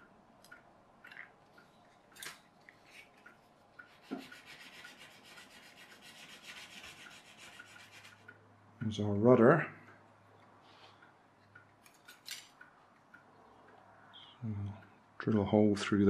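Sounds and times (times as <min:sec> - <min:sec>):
light metal clicks and taps: 0:00.0 - 0:04.4, 0:09.8 - 0:13.8.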